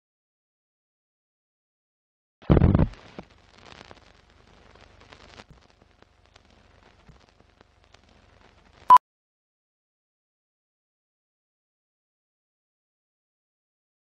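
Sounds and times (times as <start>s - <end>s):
faint film crackle: 2.4s - 9.0s.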